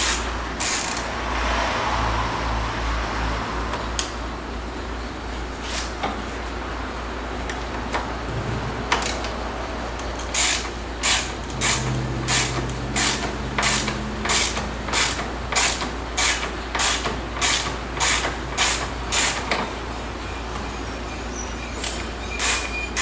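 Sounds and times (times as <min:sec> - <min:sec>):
hand ratchet clicking: 0:10.1 - 0:19.6.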